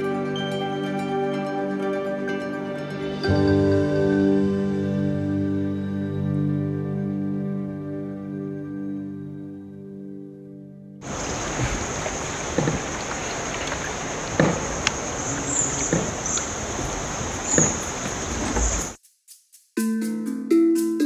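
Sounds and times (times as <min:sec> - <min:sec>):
paddle strokes swishing water: 0:11.0 - 0:19.0
steady high-pitched hiss: 0:11.0 - 0:19.7.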